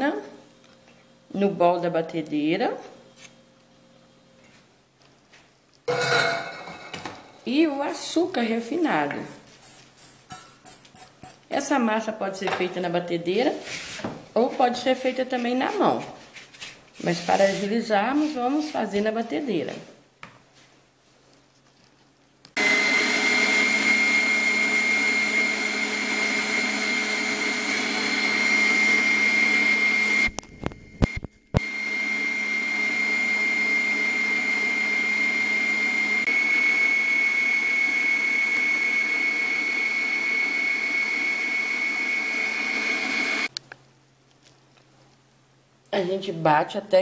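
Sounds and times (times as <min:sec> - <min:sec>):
stand mixer whining: 0:22.6 - 0:43.5.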